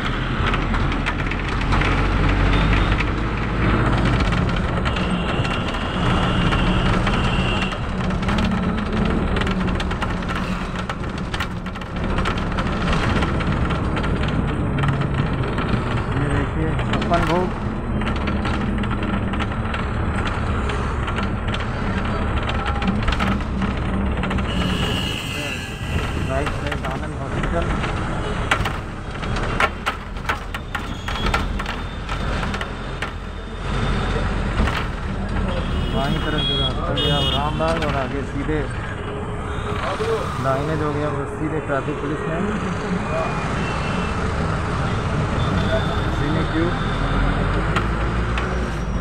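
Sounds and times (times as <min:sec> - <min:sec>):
rattles and knocks: 0:00.0 - 0:25.0, 0:25.9 - 0:36.5, 0:37.4 - 0:39.4
vehicle engine hum: 0:00.0 - 0:25.2, 0:25.8 - 0:49.0
road noise rushing: 0:00.0 - 0:49.0.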